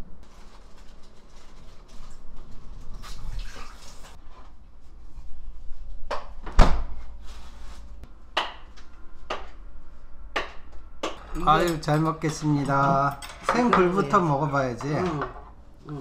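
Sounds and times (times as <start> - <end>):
tableware knocking on table: 10.4 - 14.0, 14.8 - 15.5.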